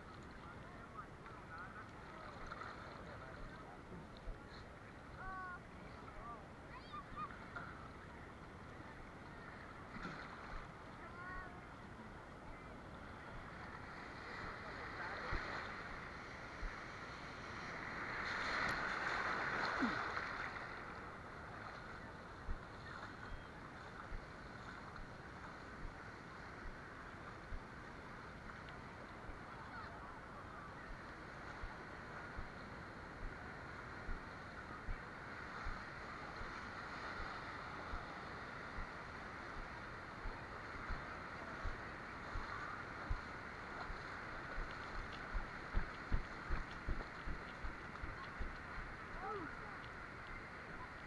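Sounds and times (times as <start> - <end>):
surf: 0.0 - 51.0
wind: 0.0 - 51.0
wind noise on microphone: 39.6 - 50.8.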